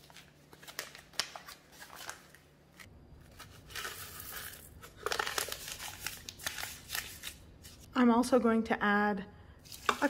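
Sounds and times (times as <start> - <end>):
paper envelope crinkling: 0.0 - 7.8.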